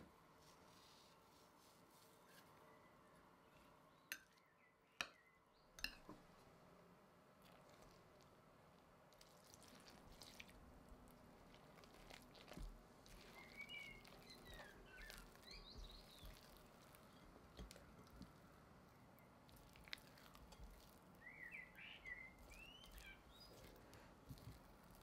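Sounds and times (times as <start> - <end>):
faint bird chirps: 2.2 - 5.8, 13.2 - 17.3, 21.2 - 23.8
spatula mixing sticky dough: 7.4 - 25.0.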